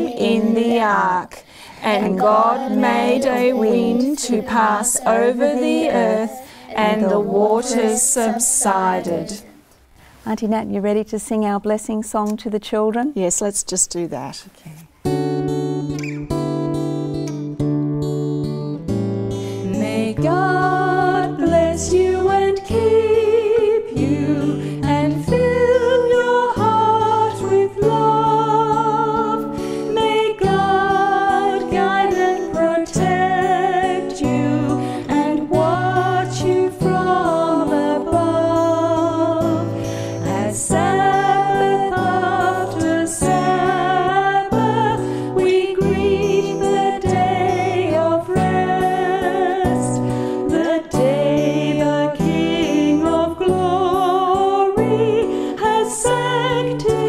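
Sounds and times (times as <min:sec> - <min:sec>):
women singing slow song: 0:00.0 - 0:09.6, 0:19.6 - 0:57.0
soft instrumental accompaniment: 0:15.0 - 0:57.0.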